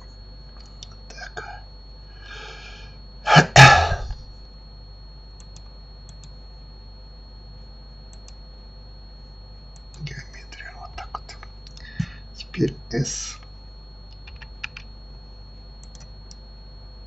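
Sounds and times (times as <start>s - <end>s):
man coughing: 3.3s - 4.2s
computer mouse clicks: 5.4s - 6.3s, 8.1s - 8.4s, 9.8s - 10.1s, 14.1s - 14.9s, 15.8s - 16.4s.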